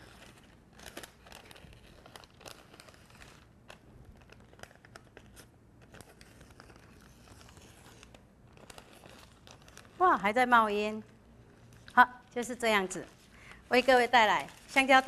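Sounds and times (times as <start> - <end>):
paper liner crinkling and tearing: 0.0 - 15.0.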